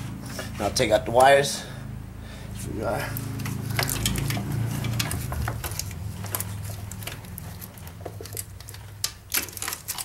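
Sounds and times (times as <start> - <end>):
clicks and knocks of tools: 3.4 - 10.0.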